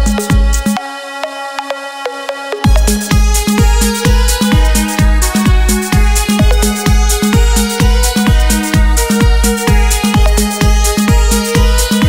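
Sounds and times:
steady kick drum: 0:00.0 - 0:00.8, 0:02.6 - 0:12.0
electronic dance music: 0:00.0 - 0:12.0
held synth notes: 0:00.0 - 0:12.0.

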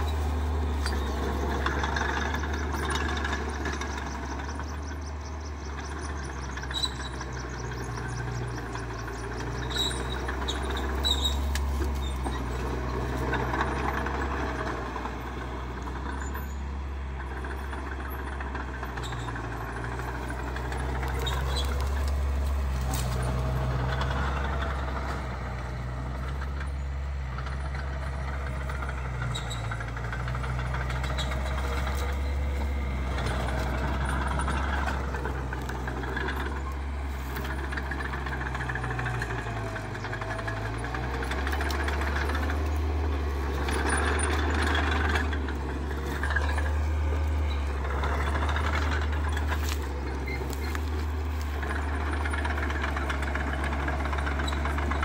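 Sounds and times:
bulldozer diesel engine droning: 0:00.0 - 0:55.0.

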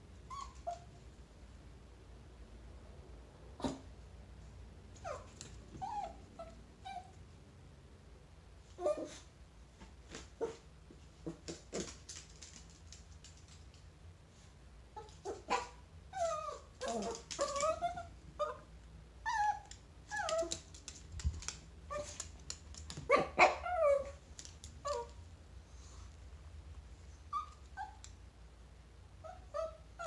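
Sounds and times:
dog yips: 0:00.3 - 0:00.9, 0:15.0 - 0:18.6
small dog whimpering and whining: 0:00.3 - 0:00.9, 0:05.0 - 0:07.2, 0:08.8 - 0:09.3, 0:15.0 - 0:20.6, 0:27.3 - 0:28.0, 0:29.2 - 0:30.0.

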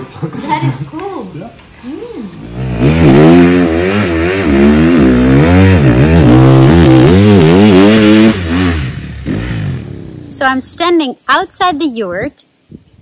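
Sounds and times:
dirt bike engine revving: 0:02.4 - 0:10.8.

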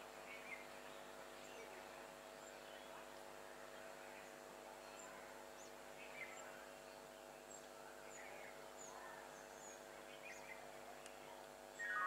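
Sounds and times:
bird chirps: 0:11.8 - 0:12.0.

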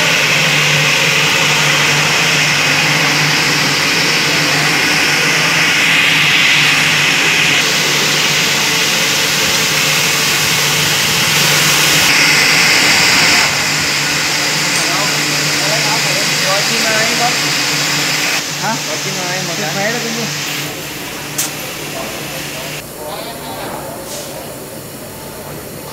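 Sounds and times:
machine hiss: 0:00.0 - 0:22.9
low machine hum: 0:00.0 - 0:25.9.

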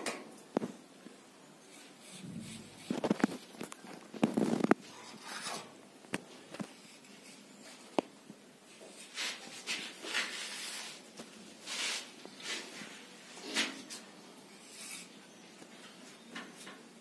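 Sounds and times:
trowel scraping cement plaster: 0:09.0 - 0:11.0.

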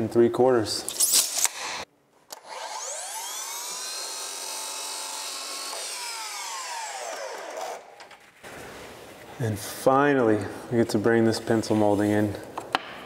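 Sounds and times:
miter saw motor whining: 0:02.3 - 0:08.0
saw blade cutting wood: 0:02.4 - 0:08.2.

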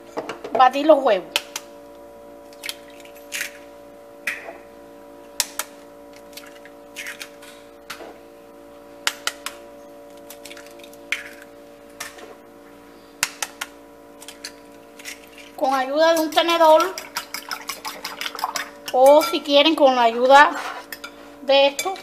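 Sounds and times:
steady hum: 0:00.0 - 0:22.0
eggshells cracking: 0:10.2 - 0:11.5.

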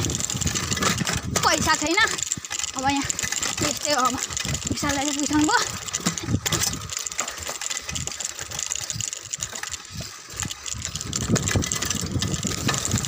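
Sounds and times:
mountain bike rattling over ground: 0:00.0 - 0:13.0
wind on microphone: 0:10.4 - 0:13.0.

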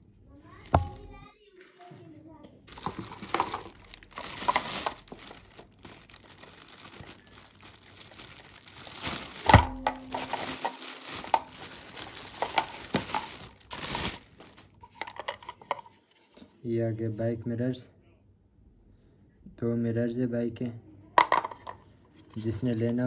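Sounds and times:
plastic bag crinkling: 0:02.7 - 0:15.8.

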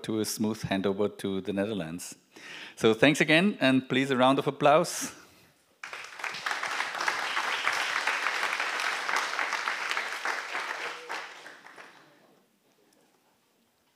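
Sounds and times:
audience applauding: 0:05.8 - 0:12.3.

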